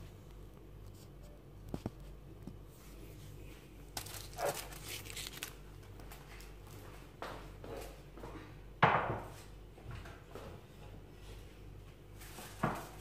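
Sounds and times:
aluminium foil crinkling: 0:03.8 - 0:06.6.

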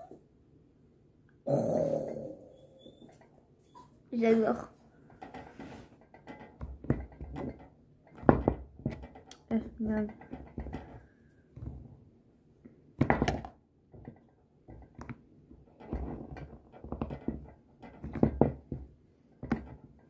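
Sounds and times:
plastic toy knocking on table: 0:08.2 - 0:09.3, 0:13.0 - 0:14.1.

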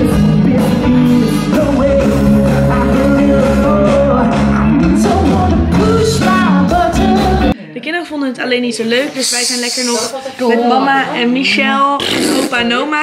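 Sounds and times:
live pop-rock band playing: 0:00.0 - 0:07.6
person singing: 0:00.0 - 0:07.6.

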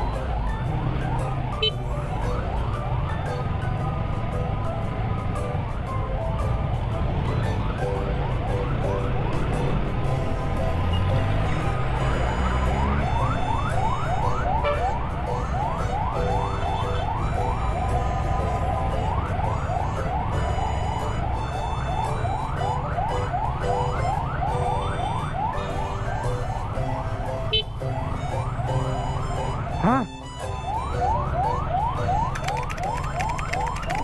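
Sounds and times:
wind: 0:00.0 - 0:34.0
fast wailing siren: 0:11.6 - 0:27.0, 0:28.0 - 0:34.0.

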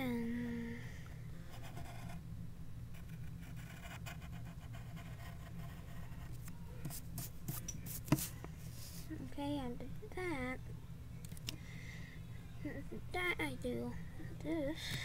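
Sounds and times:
steady low hum: 0:00.0 - 0:15.0
pencil scratching on paper: 0:01.5 - 0:02.2, 0:03.0 - 0:06.3.

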